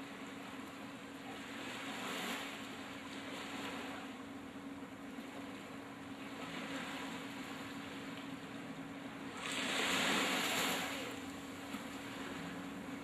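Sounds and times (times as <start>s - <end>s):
small waves lapping on sand: 0.0s - 13.0s
wave breaking: 9.3s - 13.0s.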